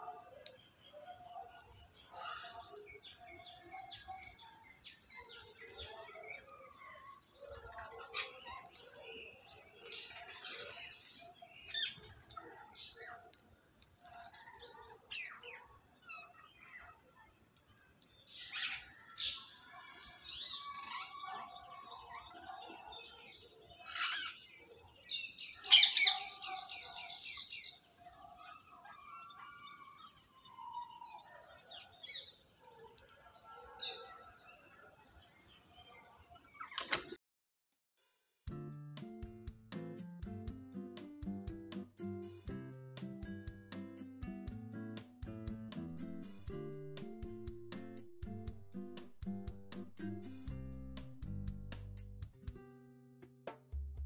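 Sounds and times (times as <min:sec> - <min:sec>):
birds chirping and calling: 0:00.0 - 0:37.2
parakeet harsh calls: 0:25.7 - 0:26.4.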